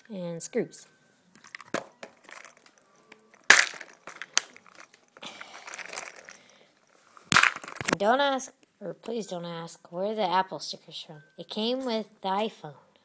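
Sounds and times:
sticker rustling: 1.4 - 8.0
plastic box clicks: 3.4 - 5.0, 7.3 - 8.0.

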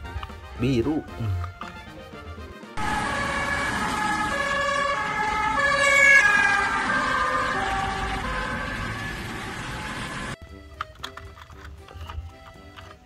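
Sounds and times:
two-tone ambulance siren: 2.8 - 10.4.

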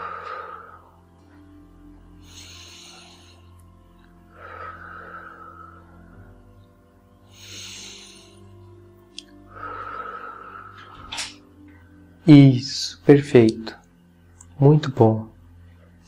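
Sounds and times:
slow deep breaths: 0.0 - 12.1
soft background music: 0.0 - 16.0.

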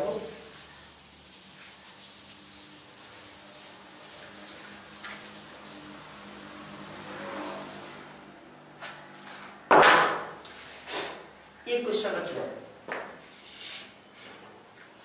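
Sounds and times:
chalk duster rubbing blackboard: 0.0 - 8.4.

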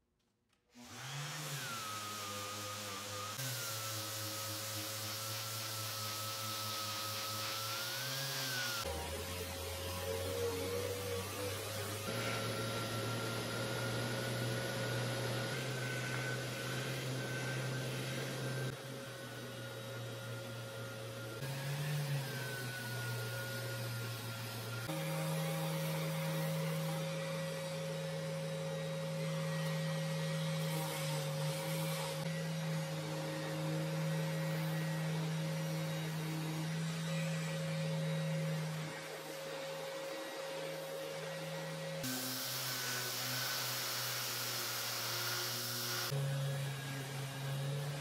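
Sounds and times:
dust extractor air rush: 0.8 - 9.7, 10.3 - 19.0, 42.0 - 46.2
dust extractor motor hum: 0.8 - 48.0
orbital sander running: 0.8 - 48.0.

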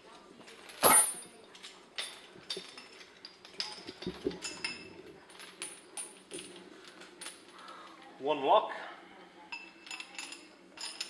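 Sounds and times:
chain links clinking on steel: 0.5 - 8.0, 9.5 - 11.0.

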